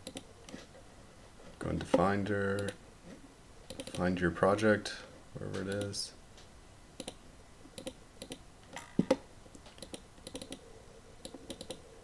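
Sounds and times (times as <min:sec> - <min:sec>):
keyboard and mouse clicking: 0:00.0 - 0:00.6, 0:01.9 - 0:02.8, 0:03.7 - 0:04.0, 0:05.5 - 0:06.0, 0:07.0 - 0:08.4, 0:09.0 - 0:10.6, 0:11.2 - 0:11.8.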